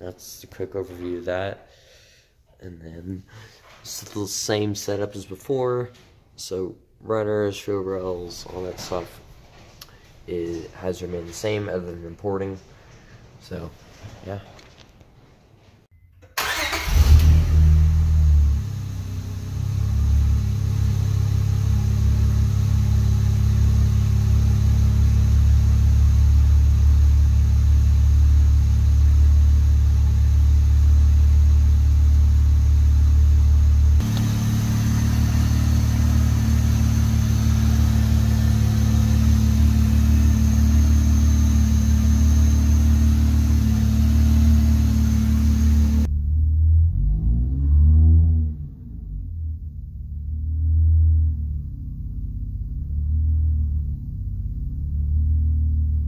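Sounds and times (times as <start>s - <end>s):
car engine revving and idling: 16.6s - 56.0s.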